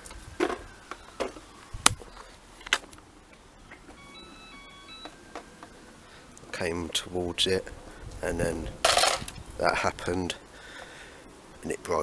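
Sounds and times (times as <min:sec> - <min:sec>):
electronic beeping tune: 0:03.6 - 0:05.9.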